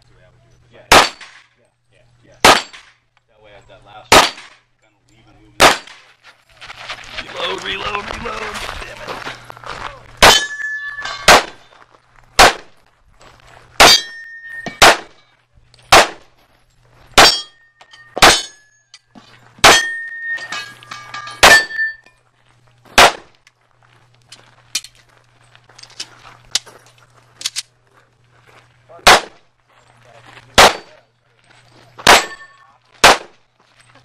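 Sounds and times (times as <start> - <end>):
pistol shots: 0.9 - 1.5, 2.4 - 2.9, 4.1 - 4.6, 5.6 - 6.0, 10.2 - 10.6, 11.2 - 11.7, 12.4 - 12.8, 13.8 - 15.2, 15.9 - 16.3, 17.2 - 17.6, 18.2 - 18.6, 19.6 - 20.0, 23.0 - 23.4, 29.0 - 29.4, 30.6 - 31.0, 32.0 - 33.4.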